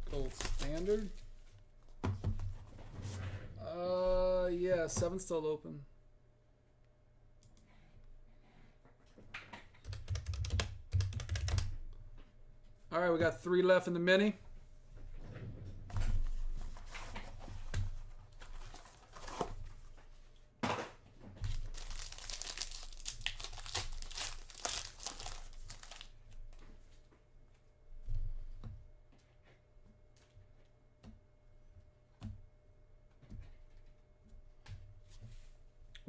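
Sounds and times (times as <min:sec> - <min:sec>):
foil wrapper tearing and crinkling: 0:00.1 - 0:01.2, 0:21.4 - 0:26.2.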